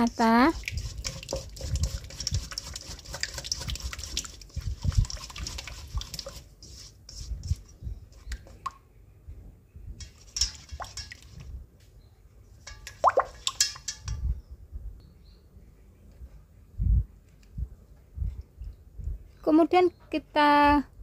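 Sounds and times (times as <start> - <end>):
spatula stirring wet batter: 0.0 - 8.6, 10.0 - 11.6, 12.6 - 14.1.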